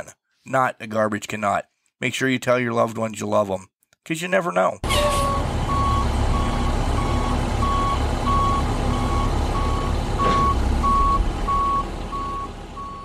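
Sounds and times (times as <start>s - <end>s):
truck engine rumble: 4.8s - 13.0s
truck reversing alarm beeping: 4.8s - 13.0s.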